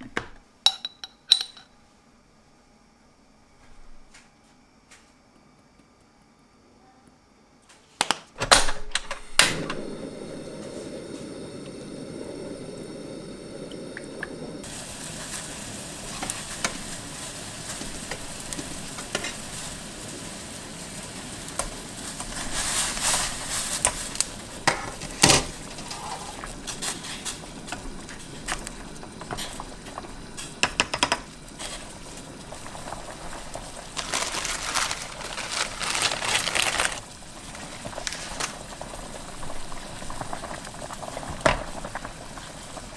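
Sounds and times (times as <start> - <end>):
broth bubbling in a pot: 9.4 - 42.9.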